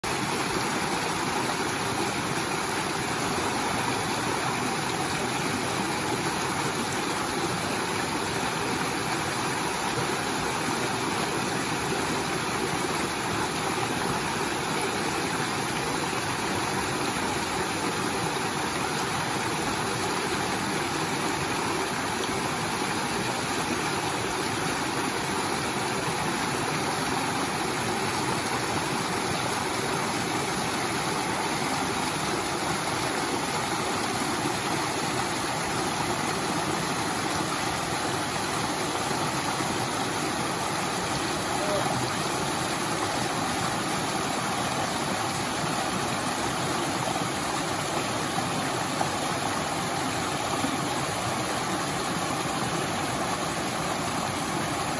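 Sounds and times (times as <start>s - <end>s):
stream cascading over rocks: 0.0s - 54.9s.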